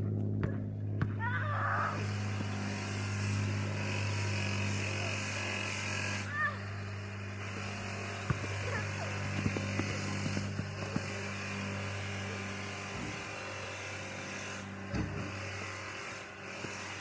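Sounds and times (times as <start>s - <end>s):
low machine hum: 0.0s - 17.0s
basketball knocking on hoop: 8.2s - 8.7s, 9.3s - 11.2s, 14.9s - 15.2s.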